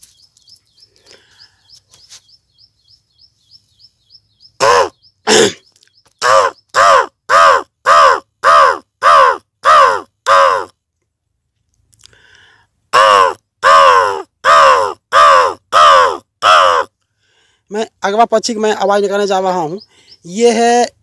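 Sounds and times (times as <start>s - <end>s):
faint high chirping: 0.0s - 6.8s
man imitating crow caws: 4.6s - 5.6s, 6.2s - 10.8s, 12.9s - 17.0s.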